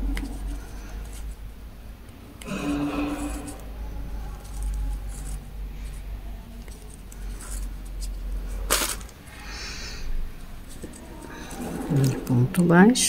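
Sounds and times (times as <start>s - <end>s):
crochet hook working yarn: 0.0s - 1.5s, 2.1s - 8.9s.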